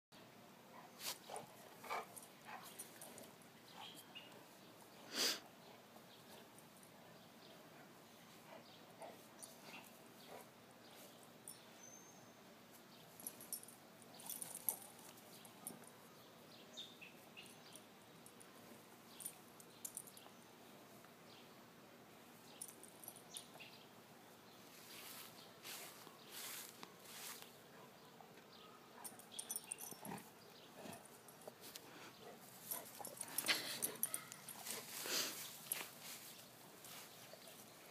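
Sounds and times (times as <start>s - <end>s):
dog sniffing and snuffling: 29.4s - 37.7s.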